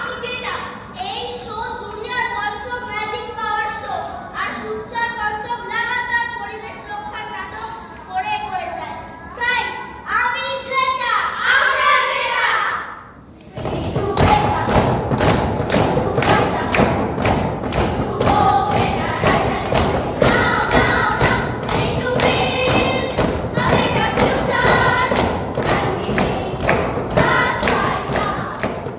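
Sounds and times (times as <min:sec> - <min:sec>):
children singing: 0:13.4 - 0:28.9
steady beat of thumps: 0:13.5 - 0:28.9.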